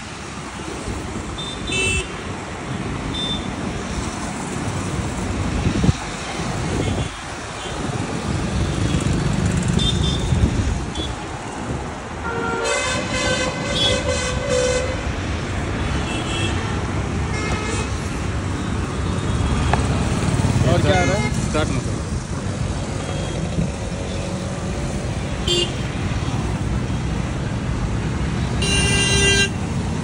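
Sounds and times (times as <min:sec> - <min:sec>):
road traffic noise: 0:00.0 - 0:30.0
vehicle horn: 0:12.2 - 0:15.0, 0:28.6 - 0:29.6.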